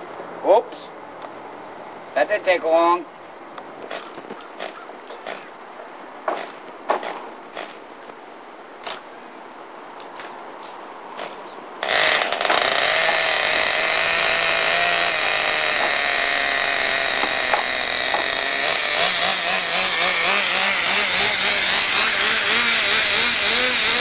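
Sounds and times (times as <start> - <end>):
small two-stroke engine idling: 11.9 - 24.0.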